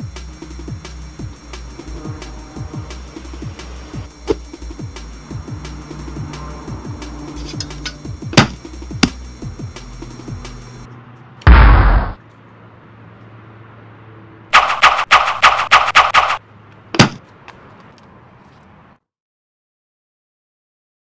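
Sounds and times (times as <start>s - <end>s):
loud low boom: 11.5s - 12.2s
rapid burst of gunshots: 14.5s - 16.4s.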